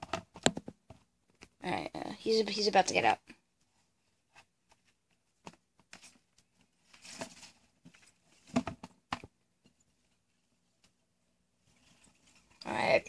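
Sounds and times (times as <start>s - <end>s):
scraping rustle in metal bin: 6.9s - 8.4s.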